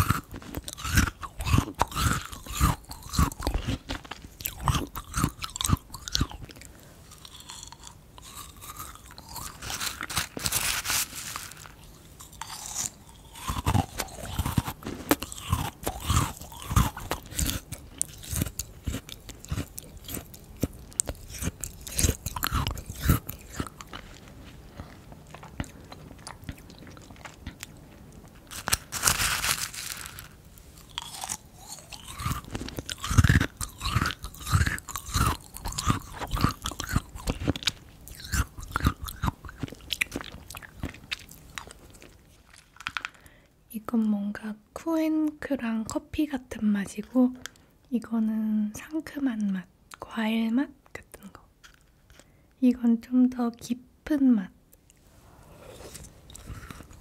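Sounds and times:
crunching and chewing ice cream: 0.0s - 43.5s, 51.2s - 52.4s, 54.8s - 57.0s
rustling: 9.4s - 12.9s, 27.2s - 33.0s.

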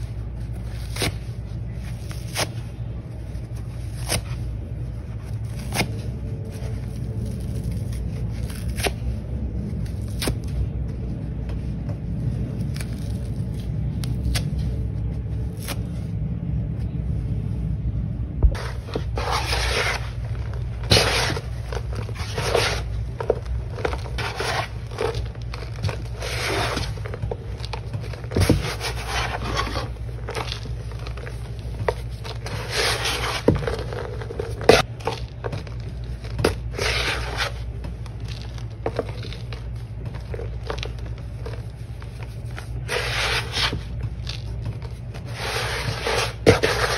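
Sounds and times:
low steady rumble: 0.0s - 46.9s
sponge tearing: 5.2s - 10.6s, 12.5s - 14.8s, 18.6s - 31.4s, 32.1s - 35.3s, 36.4s - 39.8s, 40.6s - 44.5s.

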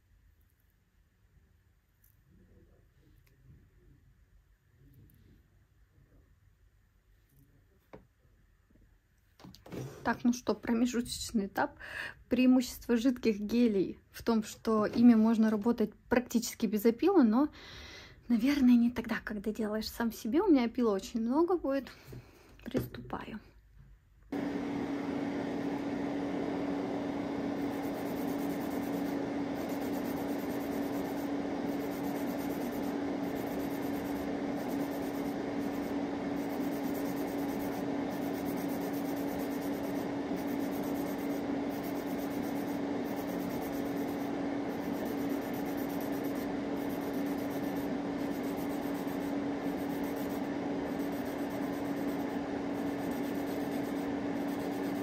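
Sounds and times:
electric nail drill humming: 24.3s - 55.0s.

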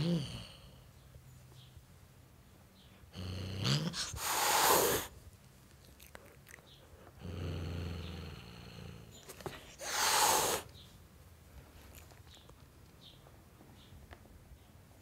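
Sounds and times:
cat growling: 0.0s - 0.7s, 3.1s - 5.1s, 9.7s - 10.7s
cat hissing: 3.6s - 5.2s, 9.6s - 10.7s.

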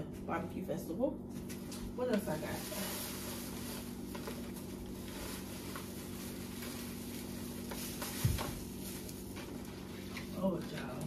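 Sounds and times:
steady low hum: 0.0s - 11.0s
cloth bag rustling and knocking: 2.5s - 10.1s.

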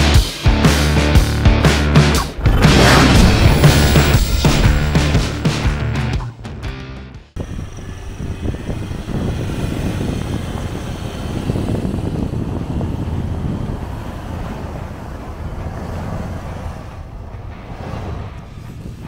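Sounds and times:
tyres churning snow: 2.3s - 5.9s, 7.4s - 19.0s
pickup engine in deep snow: 7.4s - 19.0s
wind buffeting microphone: 7.4s - 19.0s.

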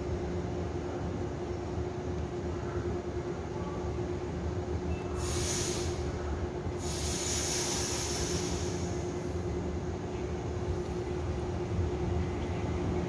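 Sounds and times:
electric train humming: 0.0s - 13.0s
air hissing: 5.2s - 6.0s, 6.8s - 9.1s.

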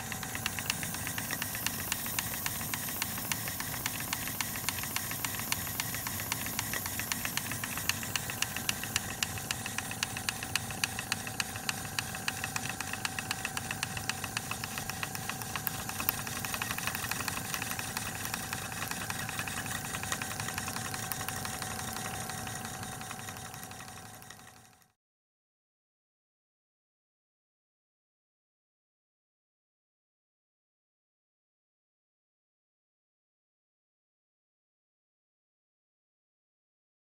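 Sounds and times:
model steam engine ticking: 0.0s - 24.8s.

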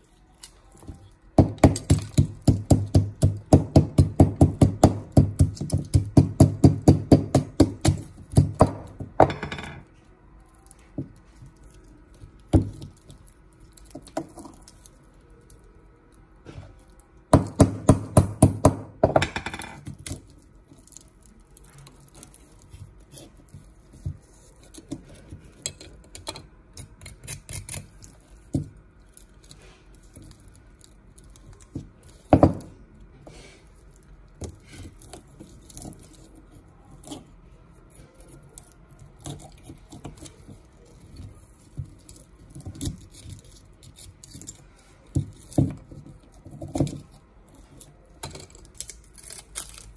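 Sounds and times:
knocking on hard object: 1.4s - 9.8s, 17.3s - 19.8s, 32.4s - 32.7s.

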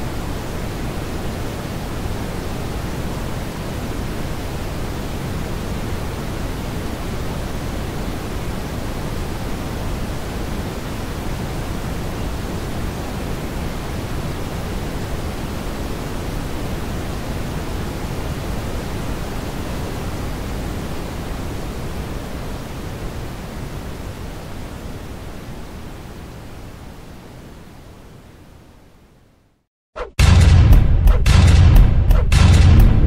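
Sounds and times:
brown noise hiss: 0.0s - 29.7s.

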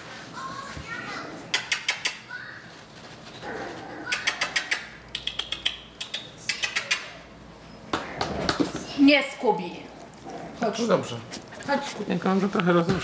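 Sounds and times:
person making kiss sounds: 1.5s - 2.2s, 4.1s - 7.2s.

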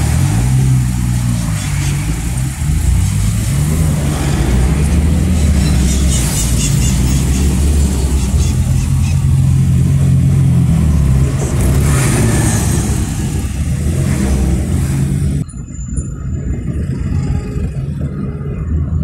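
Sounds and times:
car engine and road noise: 0.0s - 19.0s.

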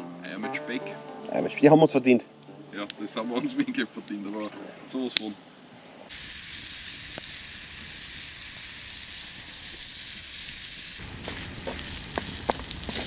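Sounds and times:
bacon and eggs sizzling: 6.1s - 13.0s.

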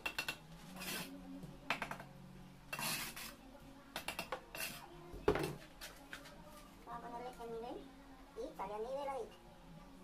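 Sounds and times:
trowel scraping on concrete blocks: 0.2s - 1.2s, 2.7s - 3.4s, 4.0s - 4.8s.

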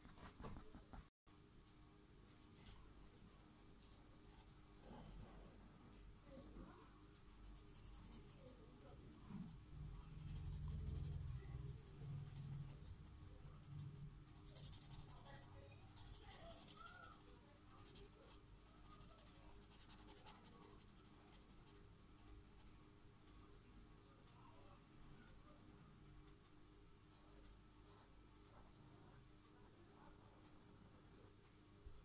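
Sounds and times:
marker scratching on paper: 7.4s - 22.2s.

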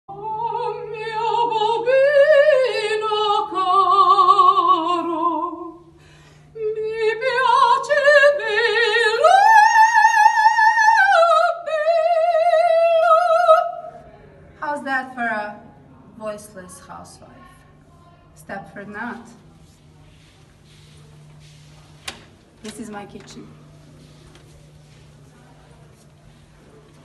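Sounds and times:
woman singing opera: 0.1s - 5.9s, 6.6s - 14.0s.

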